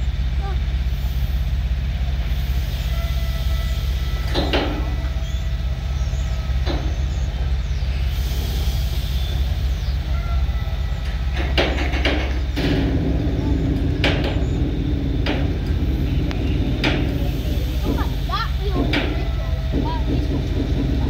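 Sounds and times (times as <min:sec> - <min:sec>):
diesel lorry engine rumbling: 0:00.0 - 0:21.0.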